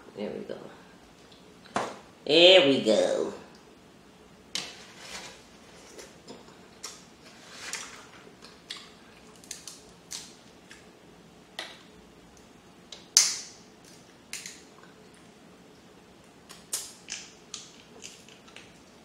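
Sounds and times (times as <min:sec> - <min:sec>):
crab shells cracking: 0:08.7 - 0:10.9, 0:13.0 - 0:14.7, 0:16.5 - 0:18.9.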